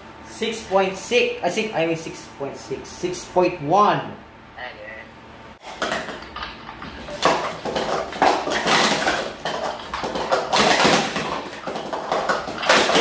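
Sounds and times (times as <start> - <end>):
plastic cups clattering: 5.6 - 13.0.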